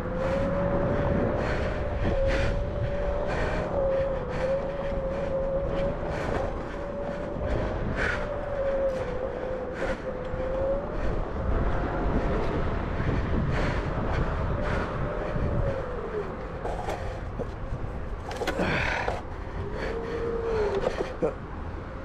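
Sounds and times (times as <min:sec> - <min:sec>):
tyre rumbling on rough dirt: 0:16.4 - 0:19.3.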